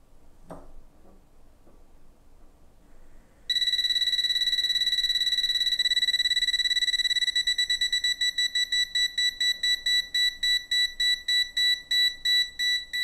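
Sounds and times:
gas detector alarm beeping: 3.5s - 13.0s.

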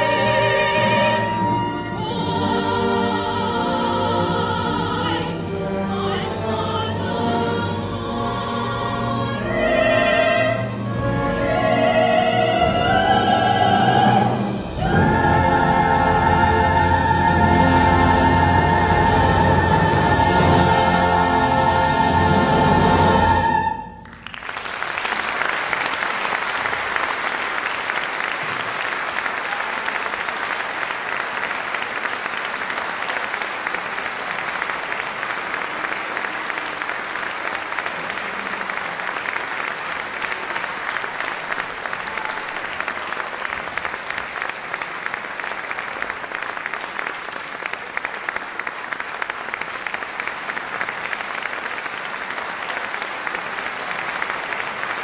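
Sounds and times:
audience applauding: 24.0s - 55.0s.

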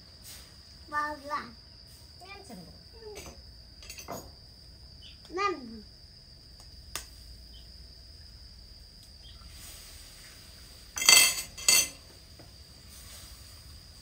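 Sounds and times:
metallic clinks on a steel wok: 3.2s - 4.3s, 11.0s - 12.1s.

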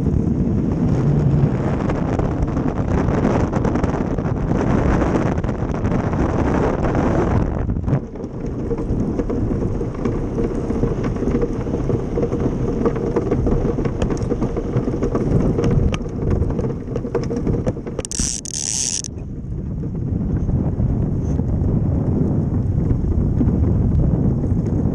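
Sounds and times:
wind buffeting microphone: 0.0s - 24.9s
steel runners scraping over ice: 8.6s - 19.1s.

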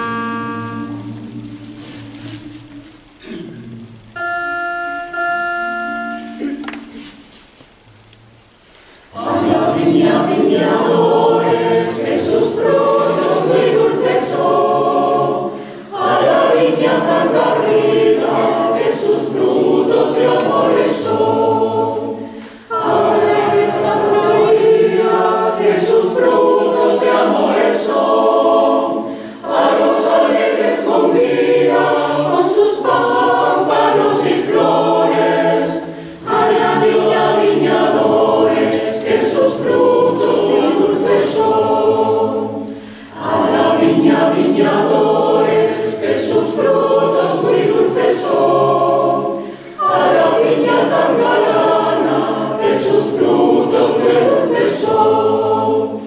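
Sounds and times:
mixed choir singing a cappella: 0.0s - 4.4s, 9.0s - 56.0s.

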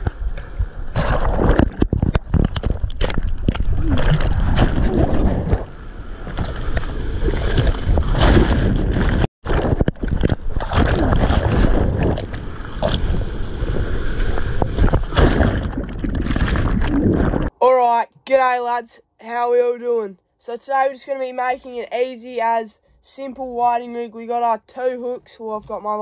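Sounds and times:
rumbling buffeting on microphone: 0.0s - 17.5s
seawater splashing and rushing: 0.9s - 17.5s.

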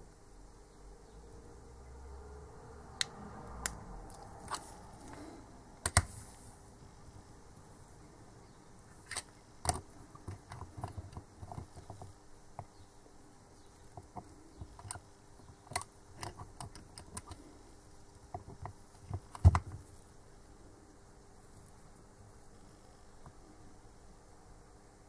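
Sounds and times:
small metallic clicks and taps: 9.1s - 12.8s, 13.9s - 17.4s.

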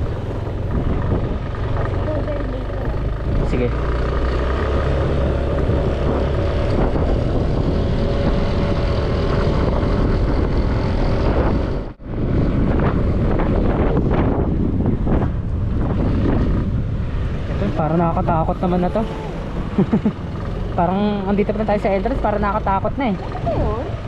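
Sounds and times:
motorcycle engine running: 0.0s - 24.0s
wind rushing over microphone: 0.0s - 24.0s.

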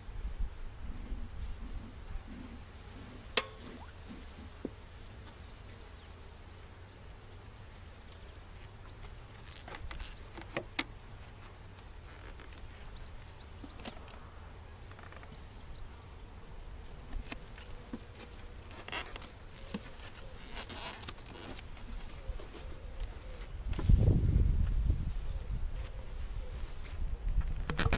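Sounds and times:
honeybees buzzing: 0.5s - 24.1s
knocks and scrapes of hive boxes: 1.5s - 5.9s, 8.2s - 13.0s, 16.9s - 24.2s.

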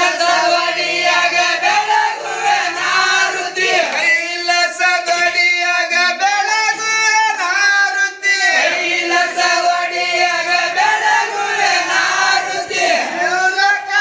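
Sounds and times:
group of voices singing: 0.0s - 4.3s, 8.3s - 14.0s.

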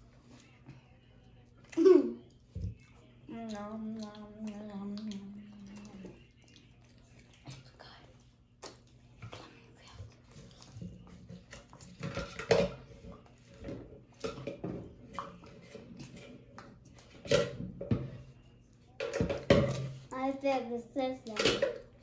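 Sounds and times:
child chewing: 1.5s - 14.2s.

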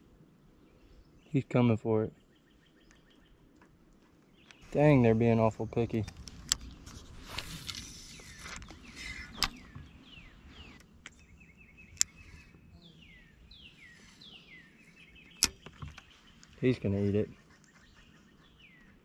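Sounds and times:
birds whistling: 7.8s - 19.0s.

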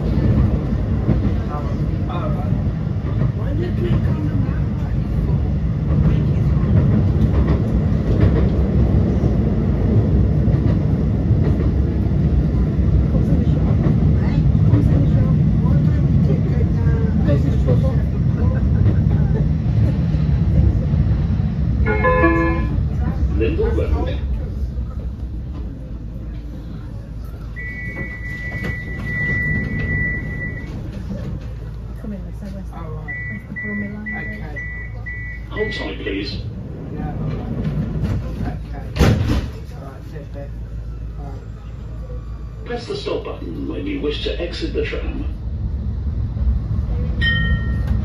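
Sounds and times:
tram wheels rumbling on rails: 0.0s - 48.0s
door warning beeper: 27.6s - 30.7s, 33.1s - 36.1s.

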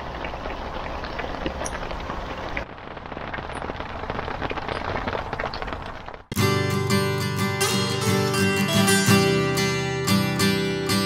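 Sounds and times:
heavy rain on water: 0.0s - 6.3s
rain striking a window: 0.0s - 6.4s
raindrops ticking: 0.0s - 6.4s.

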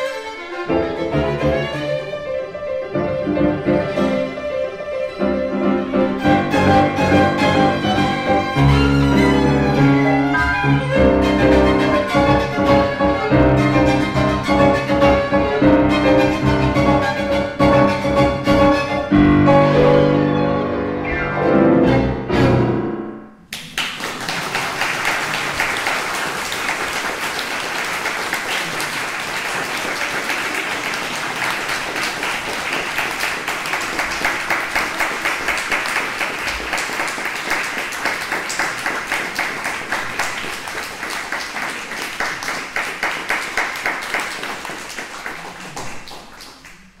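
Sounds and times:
violin and piano chord: 0.0s - 23.4s
audience applauding: 23.5s - 47.0s.

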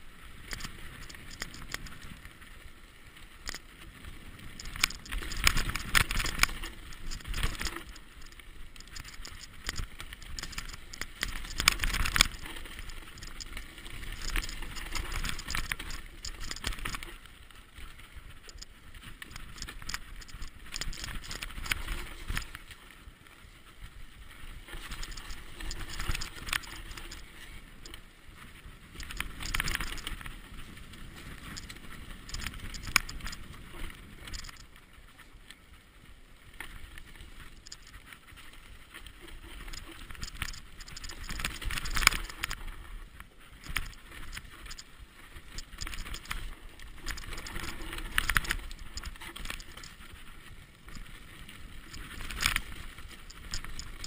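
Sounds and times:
bike rattling and knocking: 4.6s - 17.2s, 18.4s - 22.6s, 24.8s - 28.0s, 28.9s - 34.7s, 39.6s - 42.7s, 45.4s - 50.3s.

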